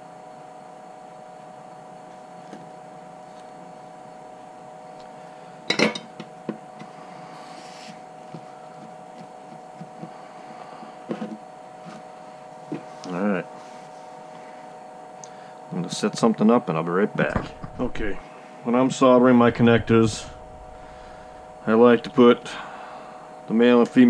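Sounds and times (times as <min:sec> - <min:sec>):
steady electrical hum: 0:00.0 - 0:24.0
tools clattering on workbench: 0:05.7 - 0:06.3.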